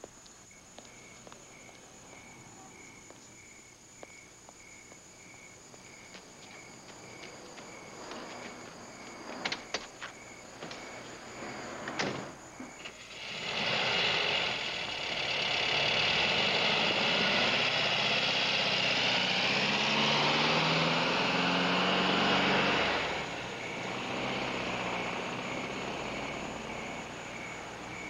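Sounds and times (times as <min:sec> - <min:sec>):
crickets chirping: 0:00.0 - 0:28.0
car engine pulling away: 0:10.5 - 0:28.0.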